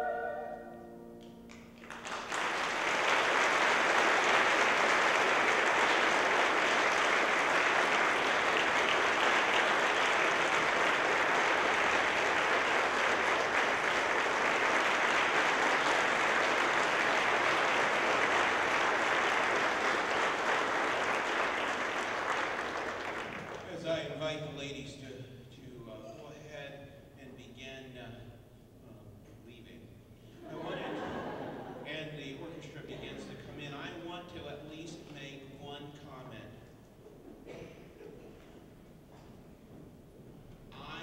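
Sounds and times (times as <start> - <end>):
audience applauding: 1.5 - 24.0.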